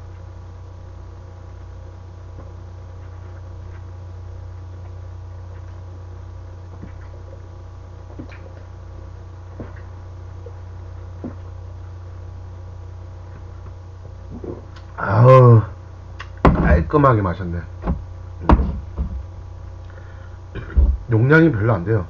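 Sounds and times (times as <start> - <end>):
low hum: 0.0 - 22.0
man swallowing: 14.3 - 15.0, 19.8 - 20.9.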